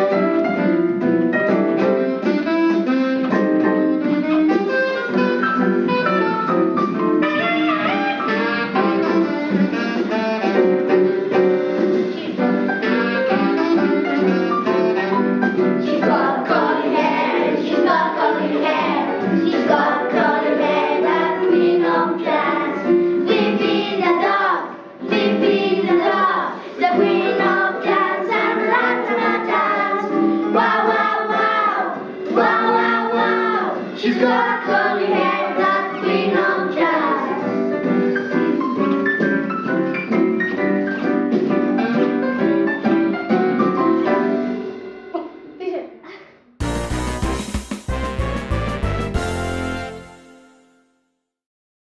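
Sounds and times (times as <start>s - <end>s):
instrumental backing track: 0.0s - 45.6s, 46.6s - 50.7s
children singing: 15.8s - 37.6s.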